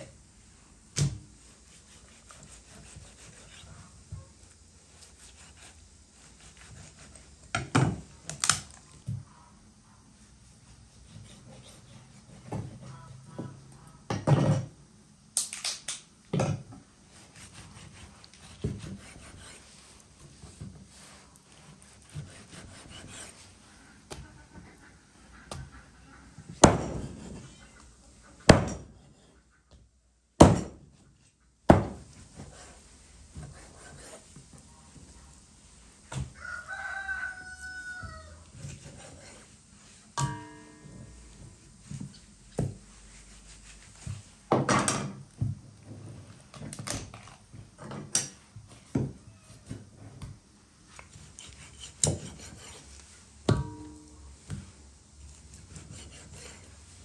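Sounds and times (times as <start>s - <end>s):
knife chopping on wooden block: 18.5s - 19.6s, 26.6s - 27.3s, 30.4s - 30.8s, 51.4s - 52.8s, 55.8s - 56.6s
rooster crowing: 36.2s - 38.5s.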